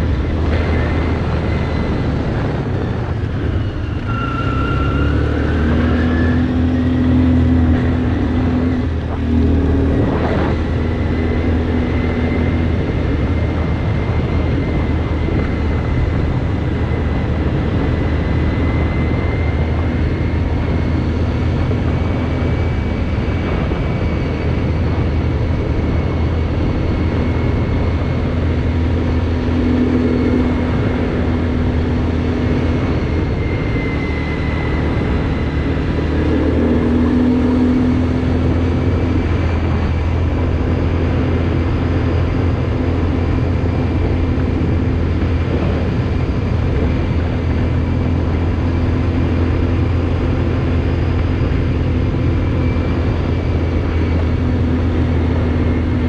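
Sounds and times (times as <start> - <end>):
quad engine running: 0.0 - 56.0.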